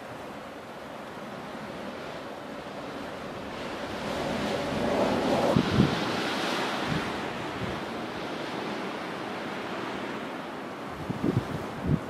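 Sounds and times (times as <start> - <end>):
blizzard wind blowing: 0.0 - 12.0
wind buffeting microphone: 3.4 - 12.0.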